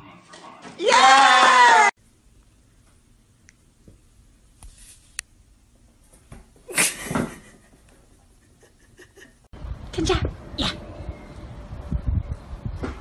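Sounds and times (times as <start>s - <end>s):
cat falling and thumping: 6.2s - 7.6s.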